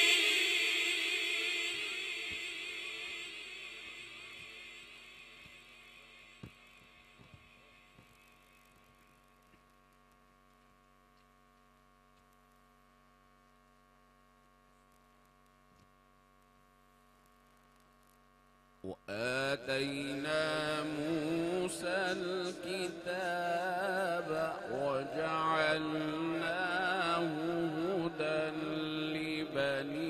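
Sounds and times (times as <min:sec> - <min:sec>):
echo of voice: 0:00.0 - 0:07.4, 0:18.8 - 0:30.0
electrical mains hum: 0:00.0 - 0:30.0
faint clicks: 0:08.0 - 0:12.7.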